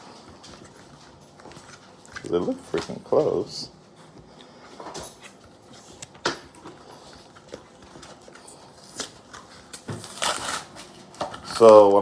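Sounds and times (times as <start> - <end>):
foil packs rustling and crinkling: 6.6 - 12.0.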